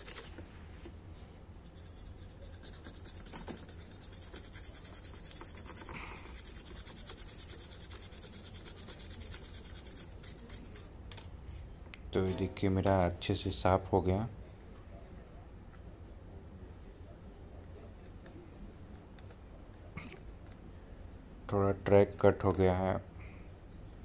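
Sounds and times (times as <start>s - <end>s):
toothbrush scrubbing circuit board: 0.0s - 0.4s, 1.6s - 10.9s.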